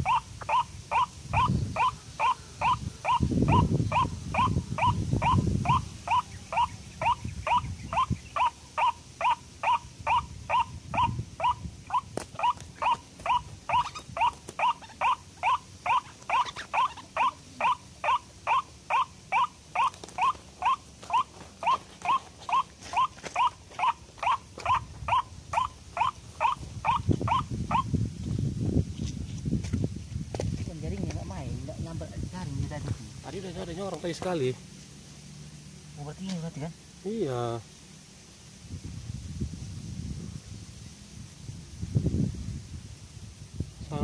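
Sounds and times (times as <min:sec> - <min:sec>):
waterhen calling: 0:00.0 - 0:27.9.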